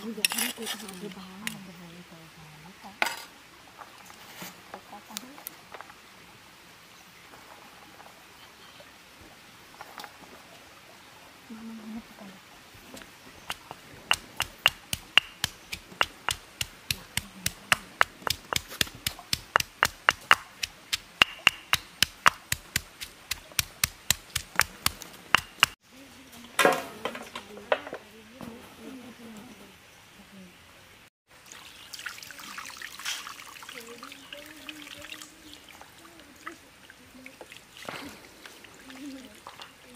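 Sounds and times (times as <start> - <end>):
stone pestle pounding in mortar: 13.5 - 25.8.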